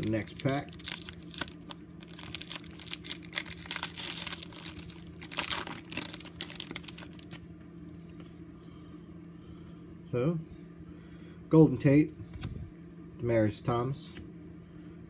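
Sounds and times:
foil wrapper crinkling: 0.0s - 7.4s
steady low hum: 0.0s - 15.0s.

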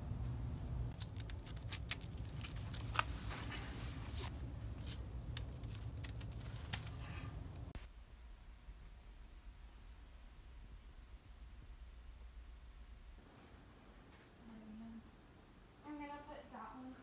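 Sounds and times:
steady low hum: 0.0s - 17.0s
plastic bag crinkling: 1.0s - 3.6s, 4.8s - 7.3s.

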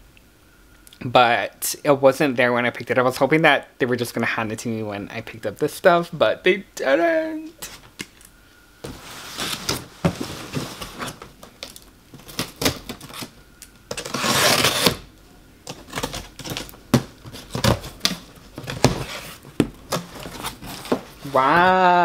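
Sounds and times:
cardboard box rustling: 8.8s - 11.5s, 15.8s - 21.6s.

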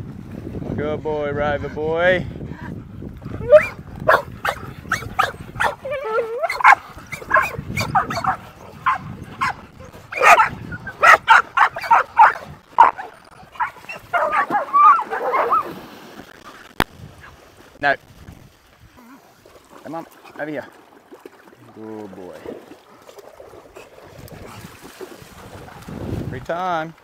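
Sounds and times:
dogs barking and yelping: 3.4s - 15.7s.

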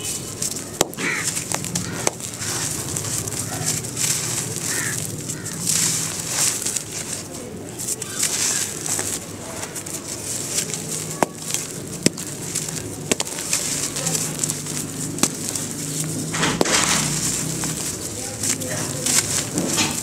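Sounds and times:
dirt chunks snapping: 0.0s - 20.0s
dirt lumps crunching by hand: 0.0s - 20.0s
falling powder trickling: 0.1s - 20.0s
pigeons cooing: 0.6s - 6.5s.

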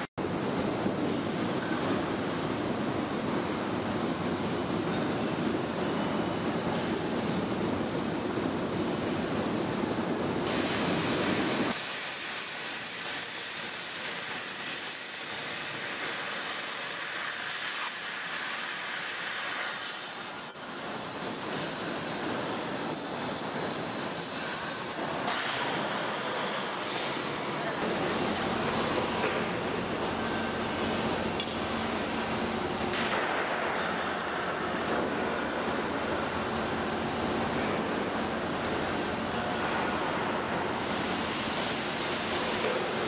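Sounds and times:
cutting torch hissing: 10.5s - 29.0s.

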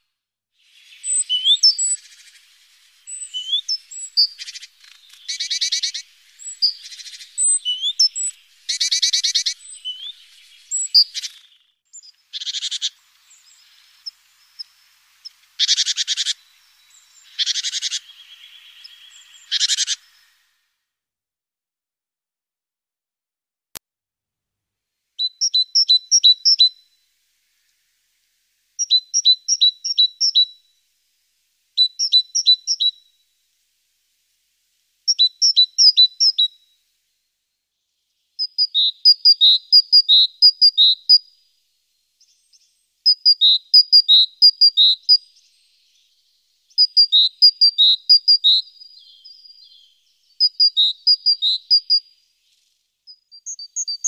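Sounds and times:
great tit singing: 0.7s - 20.4s, 25.2s - 26.8s, 28.8s - 30.6s, 31.8s - 33.0s, 35.1s - 36.5s, 37.9s - 54.0s.

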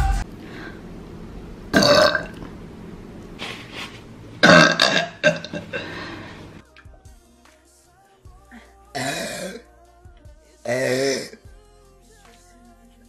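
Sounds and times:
woman burping: 1.7s - 2.4s, 4.4s - 6.0s, 9.0s - 9.6s, 10.7s - 11.4s.

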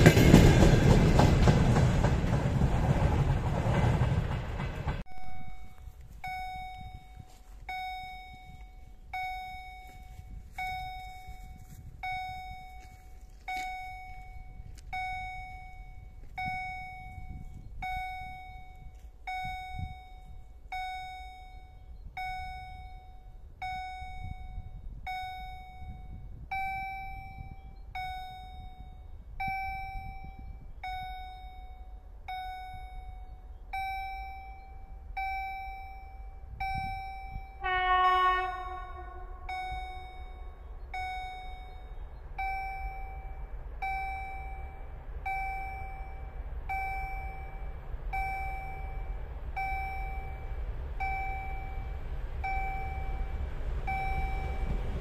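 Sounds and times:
low rumble: 0.0s - 55.0s
level crossing bell ringing: 5.1s - 55.0s
locomotive horn blast: 37.4s - 40.8s.

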